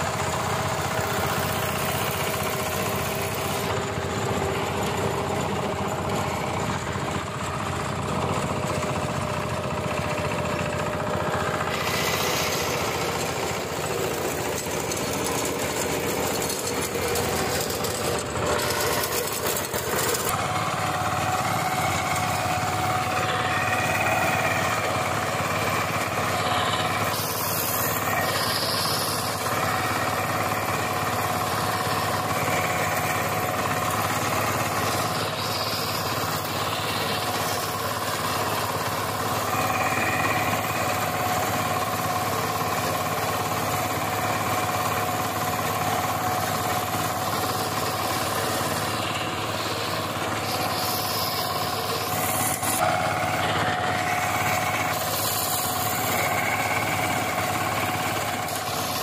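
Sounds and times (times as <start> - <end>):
power tiller diesel engine: 0.0 - 59.0
second power tiller running: 0.0 - 59.0
tines churning soil: 0.0 - 59.0.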